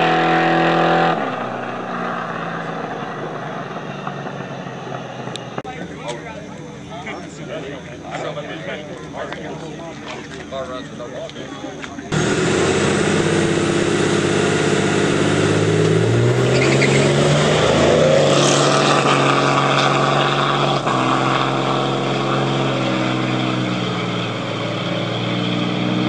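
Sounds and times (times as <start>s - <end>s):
car engines revving high: 0.0s - 5.8s, 12.0s - 26.0s.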